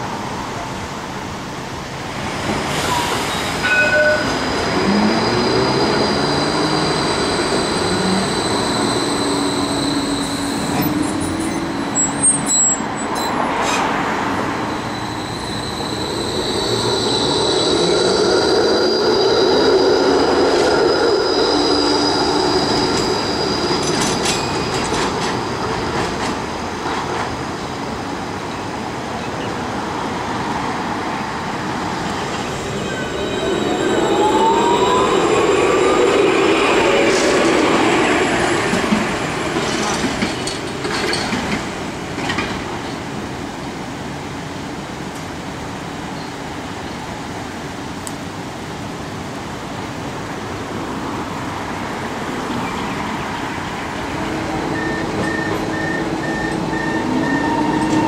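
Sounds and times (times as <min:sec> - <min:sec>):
tram wheels squealing on rails: 0:02.5 - 0:27.6, 0:31.5 - 0:43.0, 0:52.5 - 0:58.0.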